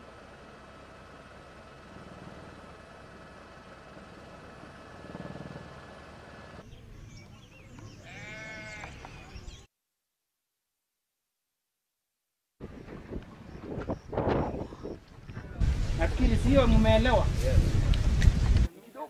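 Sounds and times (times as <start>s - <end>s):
aircraft engine drone: 0.0s - 6.9s
animal bleating: 8.0s - 9.0s.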